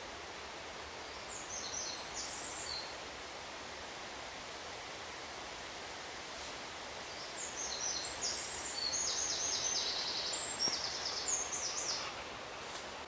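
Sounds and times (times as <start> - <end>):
songbird singing trills: 1.1 - 2.9, 7.1 - 12.1.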